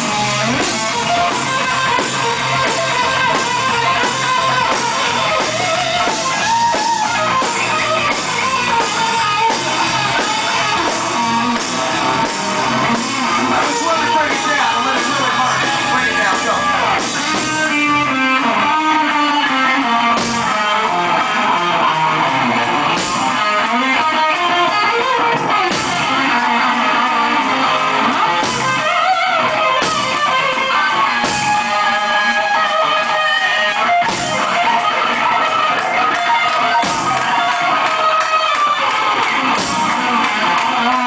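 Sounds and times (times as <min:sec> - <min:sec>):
electric guitar bending lead lines: 0:00.0 - 0:41.0
live band playing: 0:00.0 - 0:41.0.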